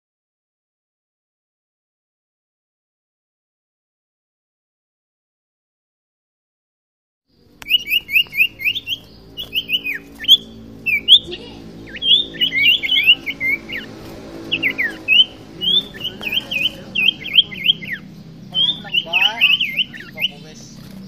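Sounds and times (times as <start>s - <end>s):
bird whistled chirps: 7.6s - 20.8s.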